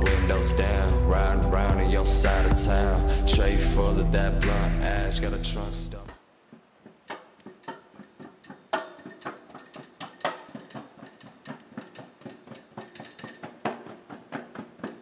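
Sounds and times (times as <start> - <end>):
scooter wheels knocking on steps: 6.5 - 15.0.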